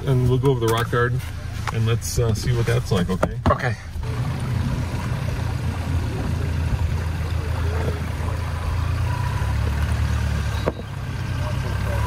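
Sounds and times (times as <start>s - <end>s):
truck engine low rumble: 0.0s - 12.0s.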